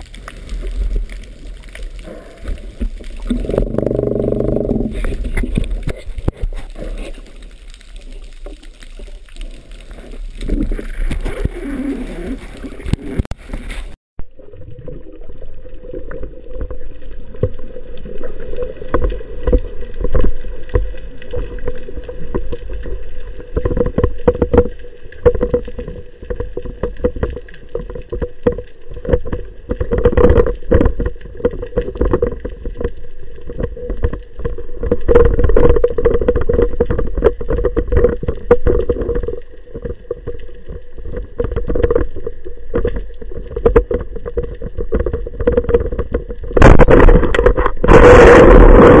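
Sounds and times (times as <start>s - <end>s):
underwater steady hum: 0.0s - 49.0s.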